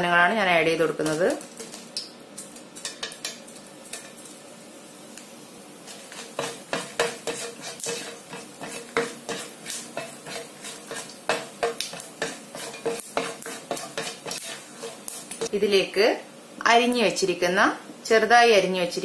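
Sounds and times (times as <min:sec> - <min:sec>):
oil sizzling in a pan: 0:00.0 - 0:19.0
spatula scraping a frying pan: 0:05.8 - 0:15.5.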